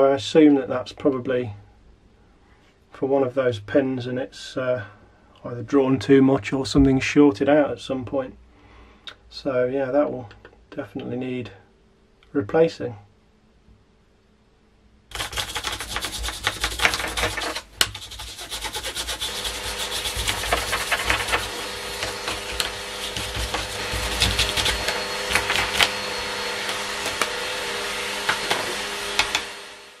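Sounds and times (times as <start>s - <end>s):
steady hum: 12.9s - 30.0s
brush scrubbing wooden surface: 15.1s - 29.5s.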